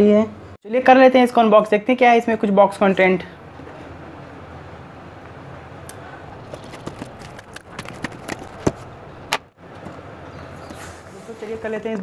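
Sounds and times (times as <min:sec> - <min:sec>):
cardboard box clicks and knocks: 0:06.5 - 0:09.4.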